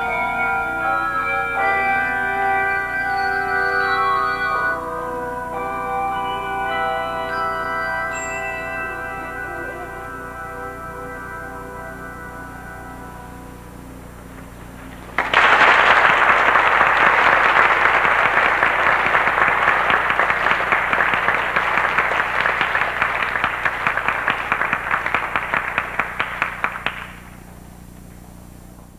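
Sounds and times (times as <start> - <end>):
handbell chord: 0.0 - 14.2
audience applause: 15.1 - 27.3.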